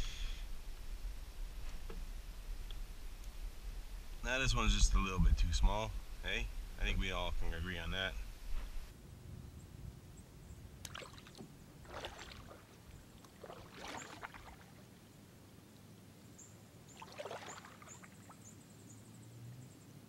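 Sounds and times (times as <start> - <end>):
kayak paddle splashing water: 10.8 - 14.9, 16.9 - 18.5.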